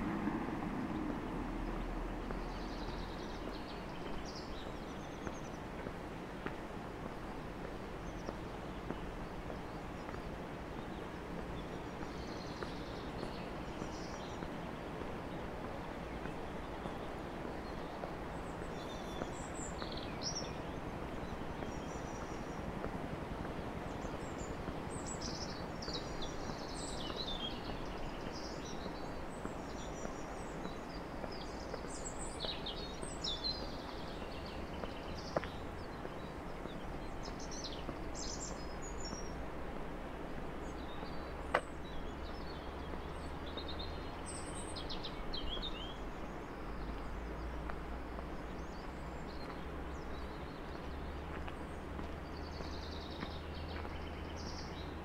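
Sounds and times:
outdoor background noise: 0:00.0 - 0:55.0
songbirds chirping and trilling: 0:00.0 - 0:55.0.

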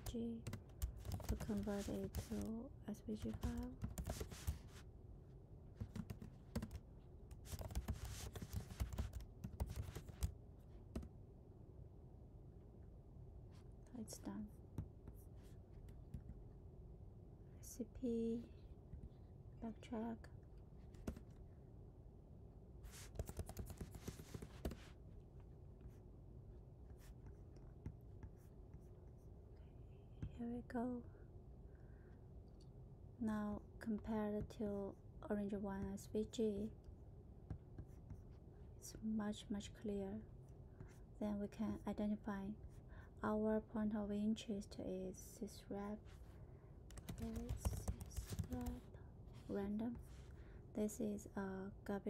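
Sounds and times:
typing on computer keyboard: 0:00.0 - 0:02.5, 0:03.2 - 0:04.6, 0:05.8 - 0:10.3, 0:23.0 - 0:24.8, 0:46.9 - 0:48.9.

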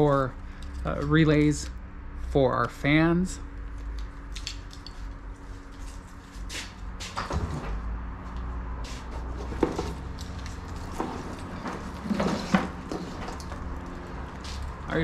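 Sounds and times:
rustling and clatter of handling: 0:09.1 - 0:15.0.

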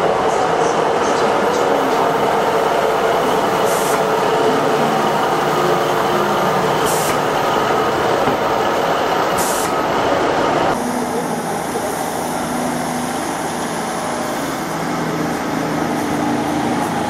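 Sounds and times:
diesel train engine droning: 0:00.0 - 0:17.0.

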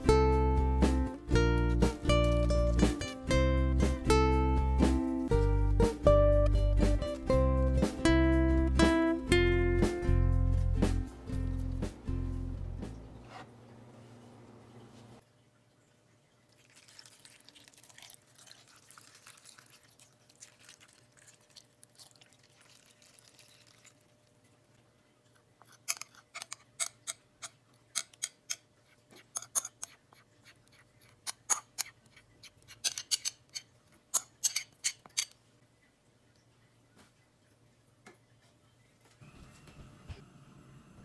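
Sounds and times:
liquid pouring hiss: 0:16.4 - 0:24.7
metal spoon scraping glass bowl: 0:25.6 - 0:27.2, 0:29.2 - 0:35.4.

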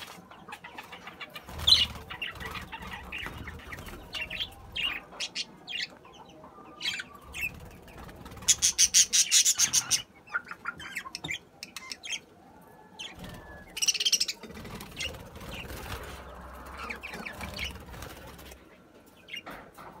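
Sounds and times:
budgerigars chirping and chattering: 0:00.0 - 0:12.3, 0:13.0 - 0:19.6
wings flapping: 0:01.3 - 0:05.0, 0:07.3 - 0:10.0, 0:13.0 - 0:18.7.

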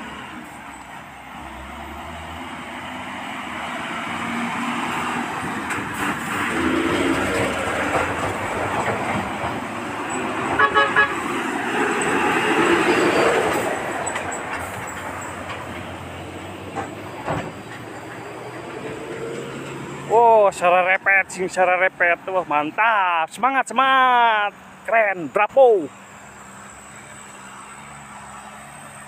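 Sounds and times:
dump trucks driving past: 0:00.0 - 0:29.0
truck horn toots: 0:10.5 - 0:11.4.

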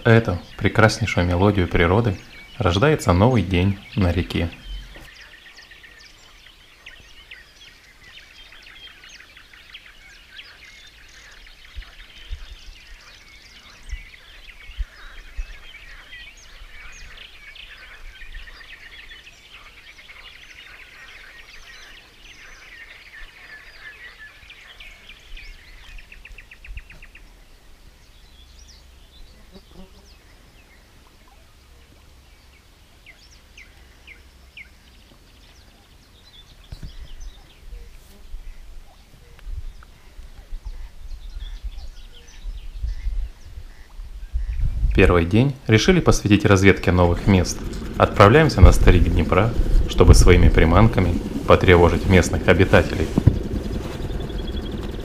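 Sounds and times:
songbirds chirping and trilling: 0:00.0 - 0:55.0
low rumble: 0:46.2 - 0:55.0.

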